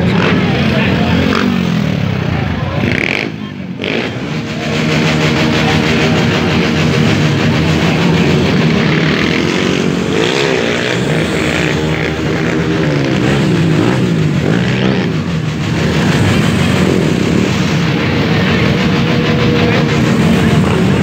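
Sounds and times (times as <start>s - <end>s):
loud rock music: 0.0s - 21.0s
motorcycle engine revving: 0.0s - 21.0s.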